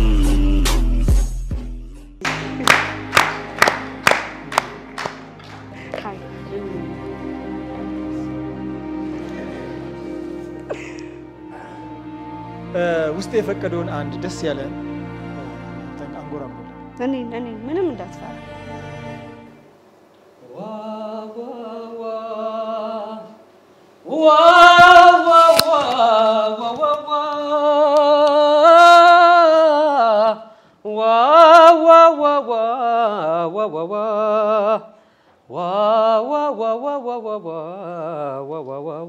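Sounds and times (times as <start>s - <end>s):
man singing unaccompanied: 0.0s - 1.2s, 20.4s - 39.0s.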